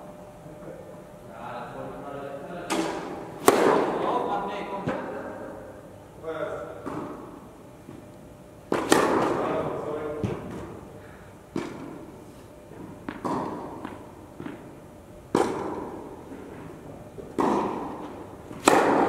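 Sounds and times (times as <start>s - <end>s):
racket striking ball: 2.7s - 4.1s, 6.8s - 8.0s, 8.7s - 9.6s, 11.5s - 12.1s, 12.7s - 19.0s
tennis ball bouncing on court: 8.7s - 9.4s, 12.8s - 14.7s, 15.3s - 19.0s.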